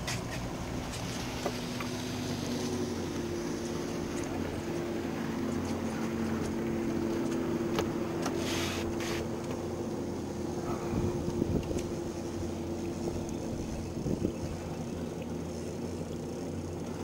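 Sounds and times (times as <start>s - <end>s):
outboard motor running: 0.0s - 17.0s
short hiss: 8.4s - 9.2s.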